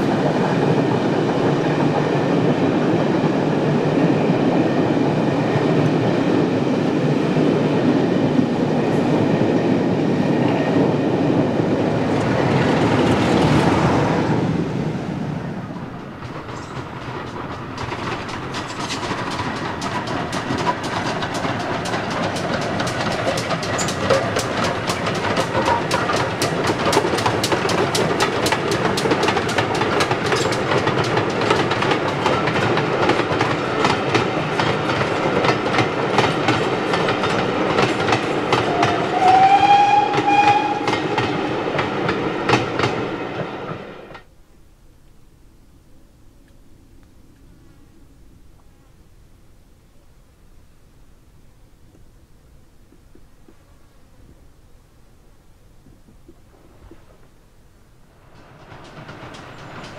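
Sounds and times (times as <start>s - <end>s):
steam locomotive passing: 0.0s - 44.3s, 57.9s - 59.9s
steam whistle: 38.6s - 41.2s.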